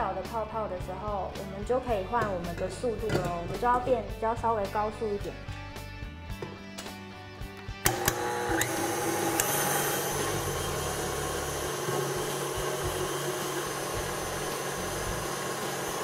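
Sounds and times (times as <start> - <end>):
stand mixer whisking: 7.9 - 16.0.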